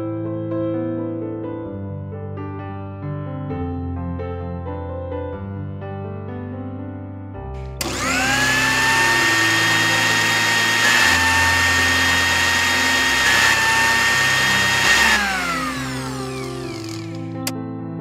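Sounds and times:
mixer grinder motor whine: 0:07.7 - 0:17.5.

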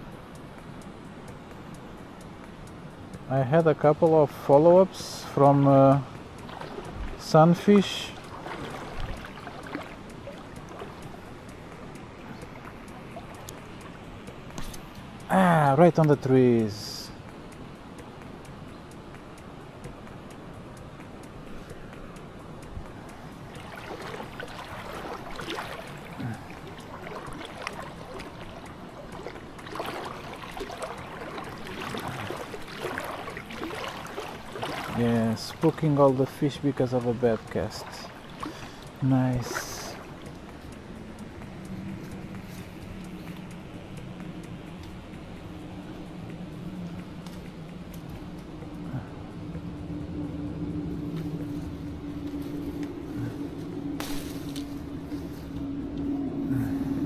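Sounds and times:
water lapping and trickling: 0:00.0 - 0:57.0
small splashes and knocks: 0:06.4 - 0:11.2, 0:23.5 - 0:40.4, 0:54.0 - 0:55.2
faint clicks: 0:08.2 - 0:15.3, 0:37.4 - 0:56.1
low mechanical hum: 0:17.0 - 0:57.0.

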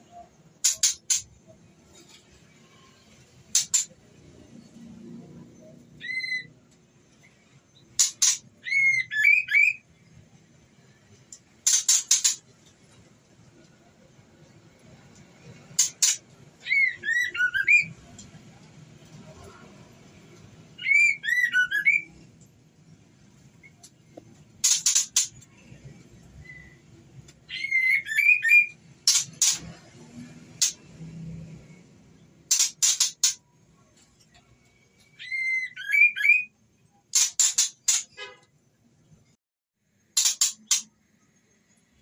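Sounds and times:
harsh rasping bird notes: 0:00.6 - 0:02.1, 0:11.6 - 0:12.4, 0:24.6 - 0:25.6
bird whistled phrases: 0:08.6 - 0:09.8, 0:16.6 - 0:17.9, 0:20.8 - 0:22.1, 0:27.5 - 0:28.8, 0:35.2 - 0:36.5.

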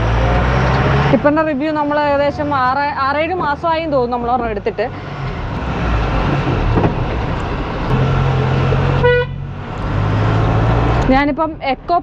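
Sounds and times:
diesel truck engine running: 0:00.0 - 0:12.0
road noise: 0:00.0 - 0:12.0
short horn toot: 0:09.0 - 0:09.4.

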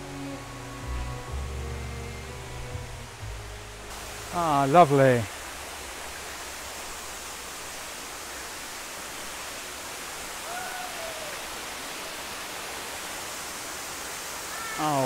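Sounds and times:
waterfall rushing: 0:00.0 - 0:15.0
faint call: 0:10.4 - 0:11.5.

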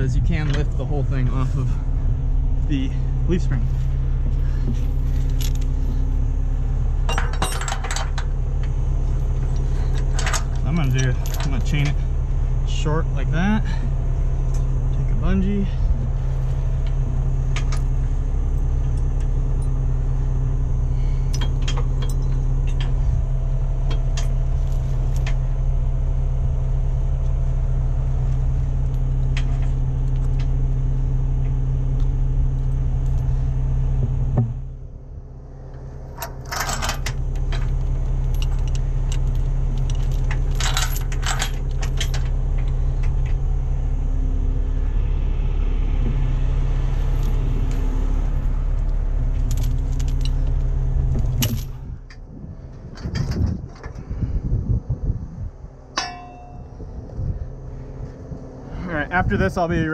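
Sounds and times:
truck engine idling: 0:00.0 - 0:59.9
chains clinking and rattling: 0:04.5 - 0:05.9, 0:07.0 - 0:12.1, 0:20.9 - 0:25.5, 0:36.2 - 0:43.0, 0:49.1 - 0:51.8.

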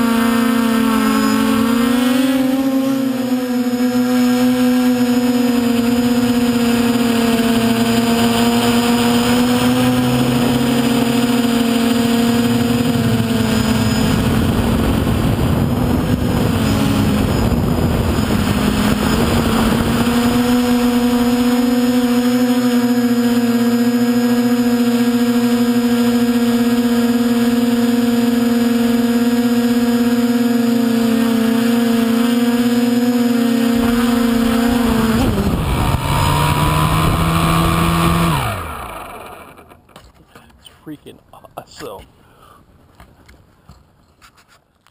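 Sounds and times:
model aircraft motor droning: 0:00.0 - 0:40.0
rushing noise: 0:07.8 - 0:21.9.

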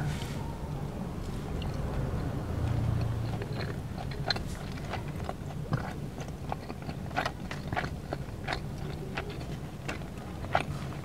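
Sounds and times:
close chewing with mouth clicks: 0:01.2 - 0:11.0.

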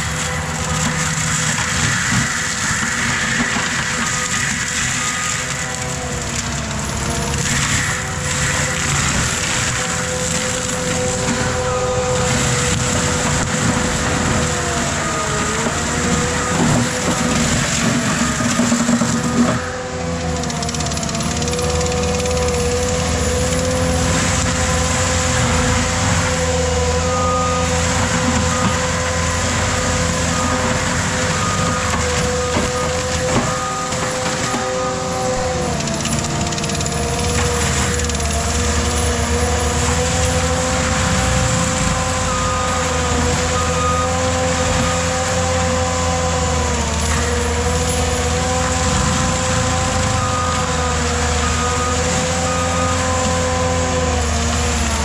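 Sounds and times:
mulcher engine whine: 0:00.0 - 0:55.0
backup alarm beeping: 0:27.0 - 0:37.0.

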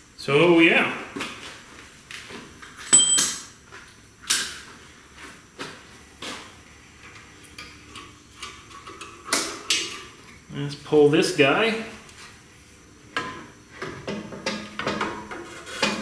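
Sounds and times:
metal clink with ring: 0:02.9 - 0:03.5.

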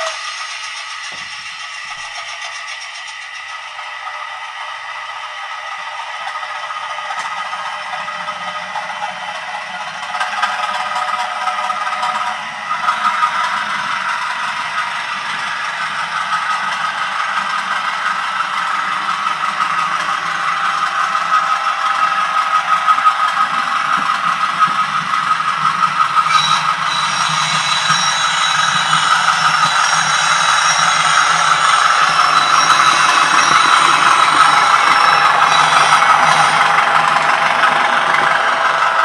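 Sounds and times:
model train wheels clattering: 0:00.0 - 0:04.2, 0:06.2 - 0:39.0
model train engine sound: 0:00.0 - 0:39.0
thin high whine: 0:25.4 - 0:39.0.

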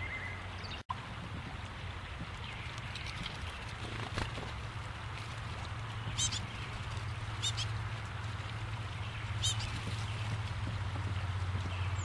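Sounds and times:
bird calling: 0:06.1 - 0:06.5, 0:07.4 - 0:07.7, 0:09.4 - 0:09.7.

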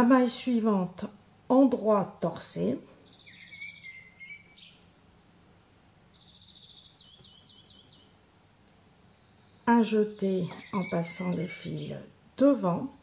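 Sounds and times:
small songbird trilling: 0:02.2 - 0:08.2, 0:09.4 - 0:12.8.

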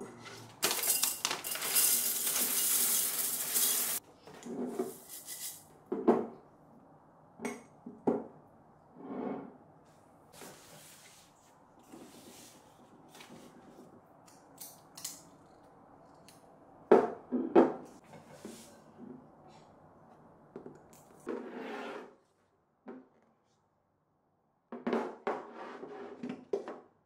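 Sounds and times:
glass containers clinking: 0:00.6 - 0:04.0.

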